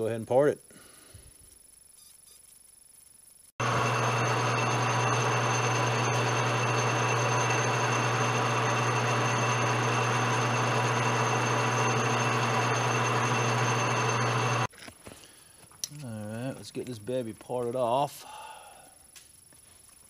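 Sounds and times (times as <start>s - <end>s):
metal lathe humming: 3.6s - 14.7s.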